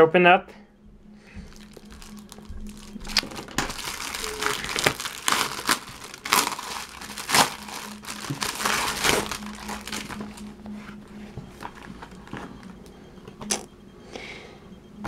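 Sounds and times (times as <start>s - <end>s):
plastic wrapping crinkling: 1.3s - 10.6s.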